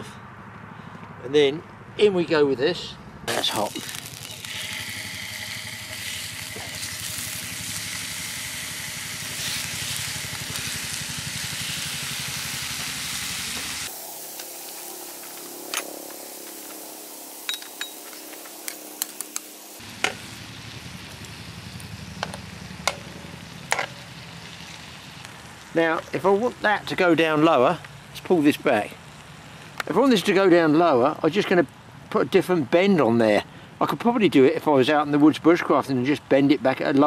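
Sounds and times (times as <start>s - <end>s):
bacon sizzling in frying pan: 3.3s - 28.4s.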